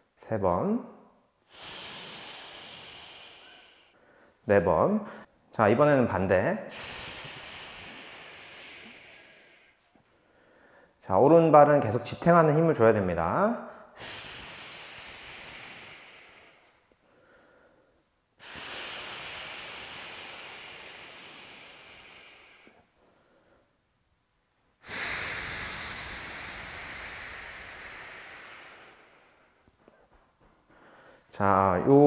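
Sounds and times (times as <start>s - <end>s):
person exhaling: 1.5s - 4.4s, 6.7s - 11.0s, 13.7s - 23.7s, 24.8s - 32.0s.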